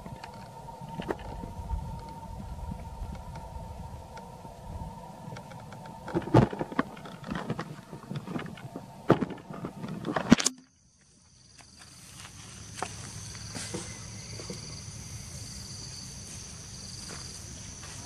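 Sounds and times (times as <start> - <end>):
low rumble: 0.0 - 10.2
insects buzzing: 0.0 - 18.0.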